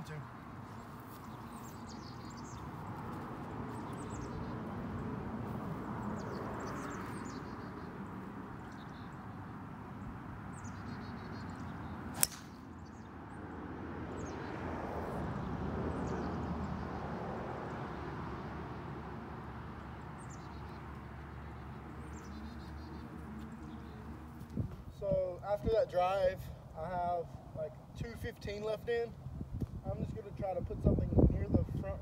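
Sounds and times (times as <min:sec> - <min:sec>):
golf club striking ball: 0:12.2 - 0:12.7
wind noise on microphone: 0:24.5 - 0:24.9, 0:29.2 - 0:32.0.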